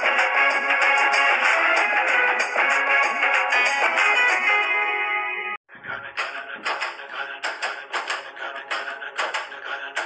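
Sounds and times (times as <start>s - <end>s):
music with fast percussive beat: 6.2s - 10.0s.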